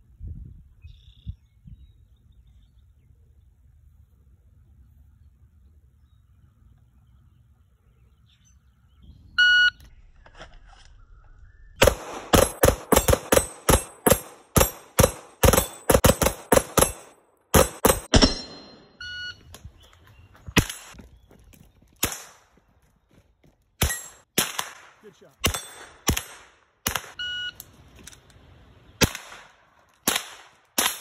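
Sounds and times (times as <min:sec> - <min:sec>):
shot timer beep: 0:09.4 - 0:09.8, 0:18.2 - 0:19.4, 0:27.2 - 0:27.6
handgun shots: 0:11.8 - 0:18.8
rifle shot: 0:11.8 - 0:18.8, 0:23.8 - 0:27.2, 0:29.0 - 0:31.0.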